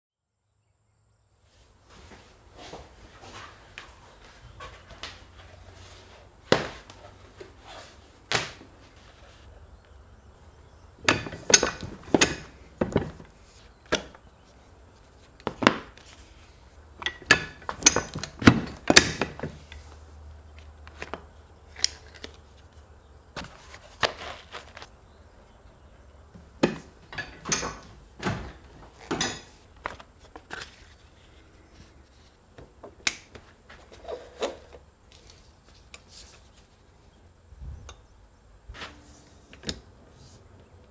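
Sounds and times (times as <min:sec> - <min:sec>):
tools clacking on hard surfaces: 0:11.0 - 0:13.2, 0:17.0 - 0:19.8, 0:26.6 - 0:29.6.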